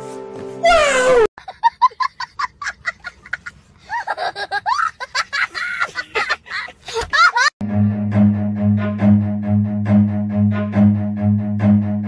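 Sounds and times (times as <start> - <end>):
high-pitched laughter: 1.4 - 7.5.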